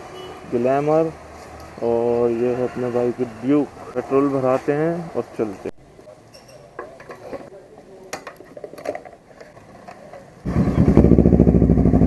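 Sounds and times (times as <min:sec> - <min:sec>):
motorcycle engine idling: 0:10.5 - 0:12.0.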